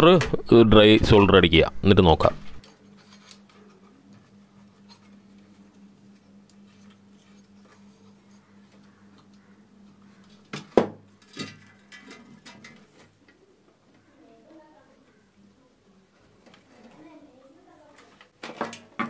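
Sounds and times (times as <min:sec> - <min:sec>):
amplifier mains hum: 0:00.0 - 0:19.0.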